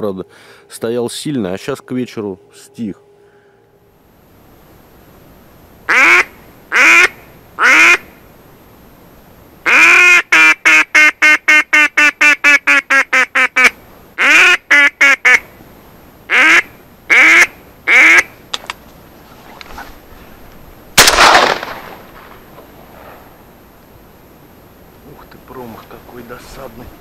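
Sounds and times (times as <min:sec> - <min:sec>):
duck call quacks: 0:05.9 - 0:08.1, 0:09.6 - 0:15.5, 0:16.3 - 0:18.4
loud bang: 0:21.0 - 0:22.4.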